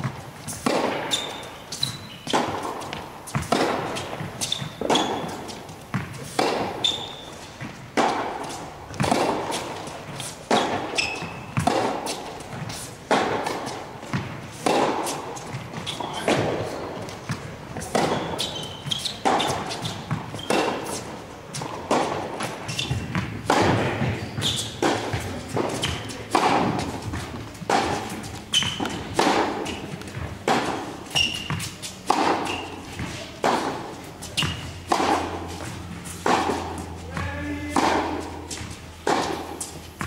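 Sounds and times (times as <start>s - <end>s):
racquets hitting tennis balls: 0.0s - 40.0s
tennis balls bouncing on hard court: 0.0s - 40.0s.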